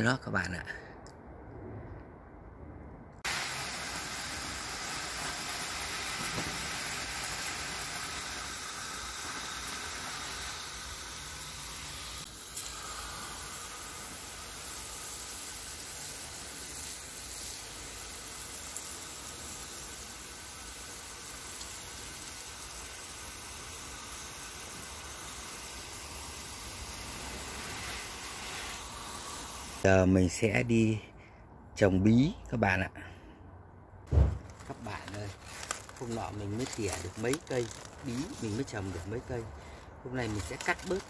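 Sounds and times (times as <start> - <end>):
hose nozzle spray hissing: 3.2 - 29.8, 35.9 - 41.0.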